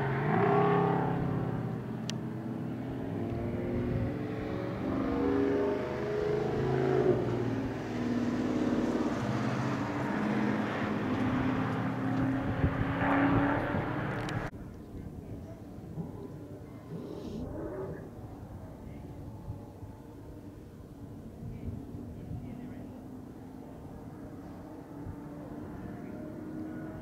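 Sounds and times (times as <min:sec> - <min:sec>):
car engine accelerating hard: 0:00.0 - 0:14.5.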